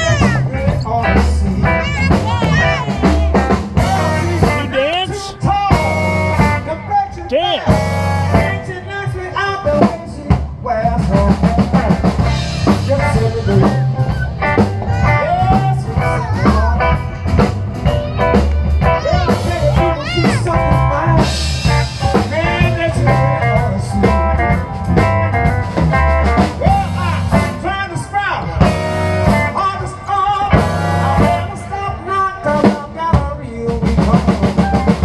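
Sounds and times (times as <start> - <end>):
blues music with drums and guitar: 0.0 - 35.0.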